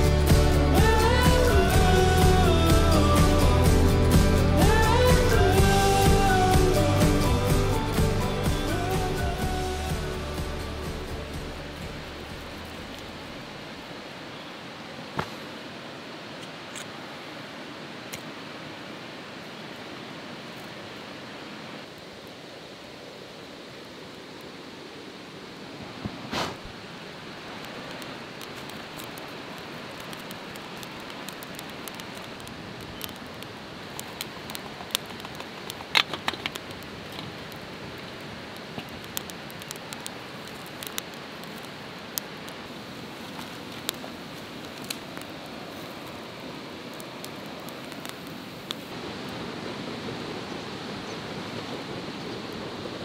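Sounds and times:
steady rushing background: 0:00.0 - 0:13.5
campfire crackling and popping: 0:00.0 - 0:14.0, 0:26.0 - 0:53.0.

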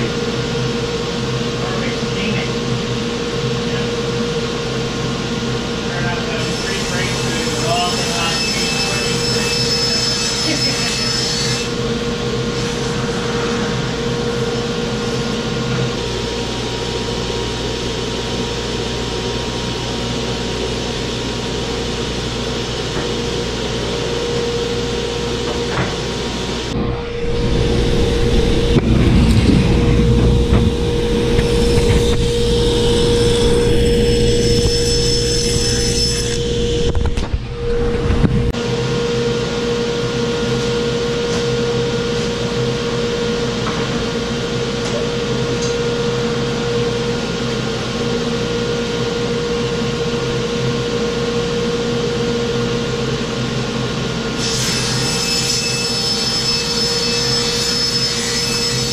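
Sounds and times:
table saw running: 0:02.8 - 0:49.5.

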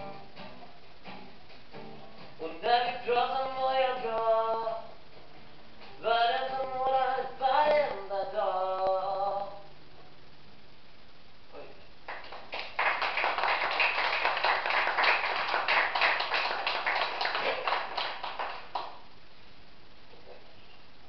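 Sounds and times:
audience applauding: 0:12.1 - 0:19.0.

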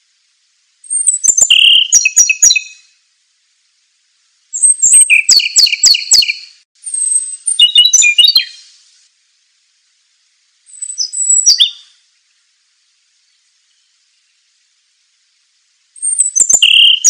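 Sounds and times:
songbird singing trills: 0:00.8 - 0:03.0, 0:04.5 - 0:08.8, 0:10.7 - 0:12.4, 0:13.2 - 0:14.6, 0:16.0 - 0:17.0.

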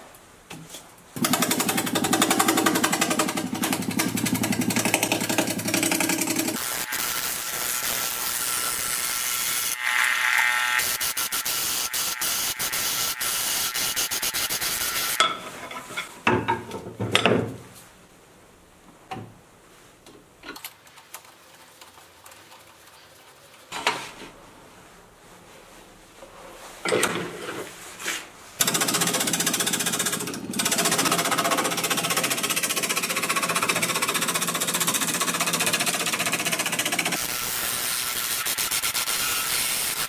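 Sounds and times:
lathe tool cutting wood: 0:01.2 - 0:15.2
knocks and scrapes: 0:25.6 - 0:28.4.

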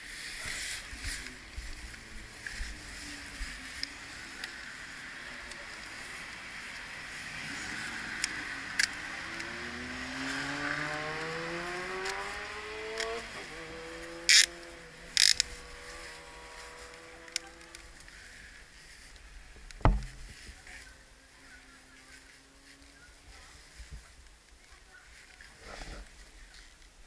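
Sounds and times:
passing vehicle engine: 0:00.0 - 0:19.5
dull thump: 0:19.8 - 0:20.3.

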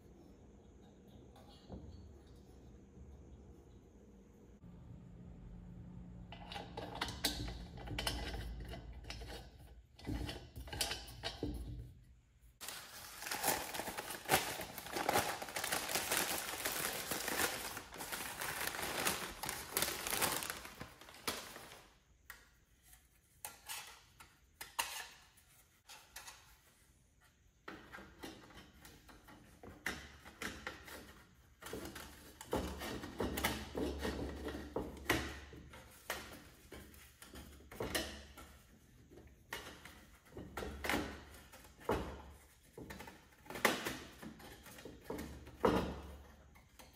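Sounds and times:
hard objects clicking and rattling: 0:12.6 - 0:21.8.

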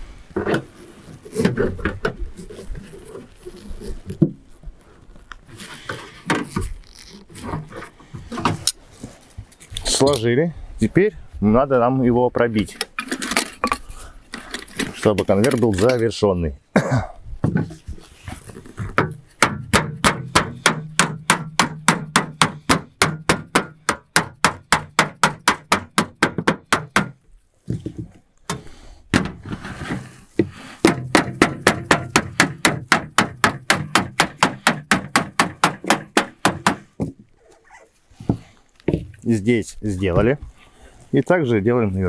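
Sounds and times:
mallet beating sheet metal: 0:19.4 - 0:27.1, 0:30.8 - 0:36.9.

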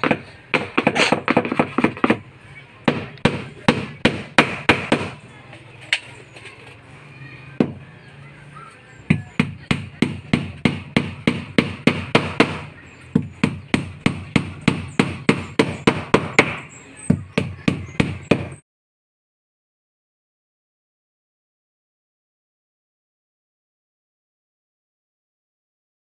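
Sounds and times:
hammer driving nails into wood: 0:00.0 - 0:02.2, 0:02.9 - 0:05.2, 0:09.1 - 0:16.7.

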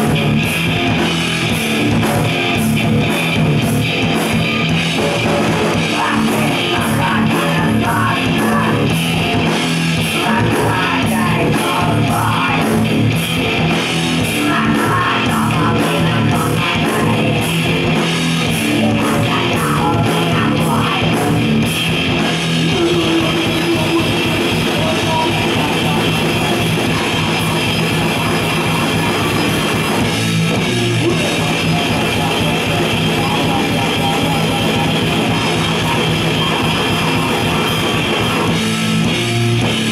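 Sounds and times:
live rock band playing: 0:00.0 - 0:39.9
rapid drum strokes: 0:00.0 - 0:39.9
person singing into a microphone: 0:05.7 - 0:09.4, 0:10.0 - 0:13.0, 0:14.2 - 0:17.7, 0:18.4 - 0:21.6, 0:22.6 - 0:30.0, 0:31.0 - 0:38.6.

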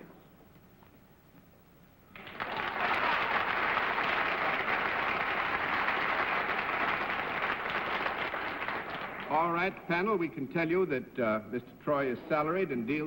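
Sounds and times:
audience applauding: 0:02.1 - 0:09.5.

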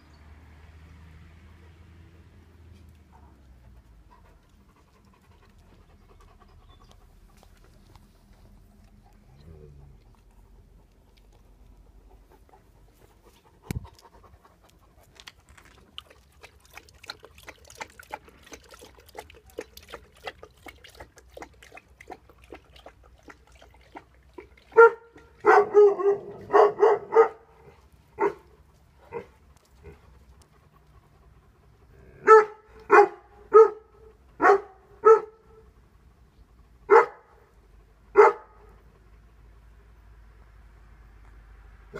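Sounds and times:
dog panting: 0:03.3 - 0:25.5, 0:27.6 - 0:33.2
dog barking: 0:24.7 - 0:27.5, 0:28.2 - 0:28.4, 0:32.2 - 0:35.4, 0:36.9 - 0:37.4, 0:38.1 - 0:38.7.

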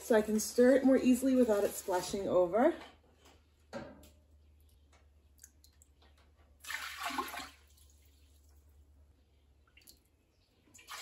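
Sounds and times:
liquid sloshing: 0:06.6 - 0:08.7.

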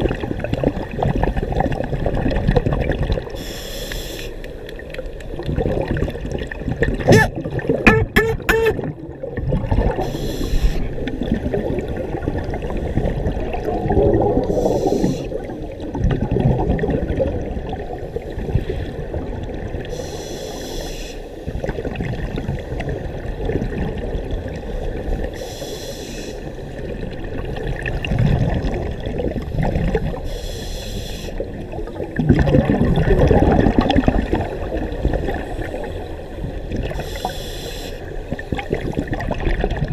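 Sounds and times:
exhaled bubbles burbling: 0:00.0 - 0:03.4, 0:04.8 - 0:19.9, 0:21.5 - 0:25.3, 0:26.8 - 0:30.3, 0:31.4 - 0:37.0, 0:38.2 - 0:39.9
regulator inhalation hiss: 0:03.4 - 0:04.4, 0:10.0 - 0:10.9, 0:14.5 - 0:15.4, 0:19.9 - 0:21.4, 0:25.4 - 0:26.5, 0:30.2 - 0:31.4, 0:37.0 - 0:38.1.

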